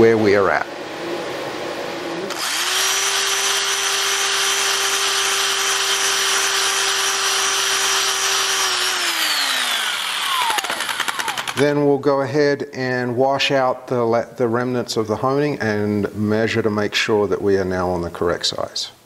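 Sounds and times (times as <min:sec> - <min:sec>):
electric drill spinning: 0:02.3 - 0:11.6.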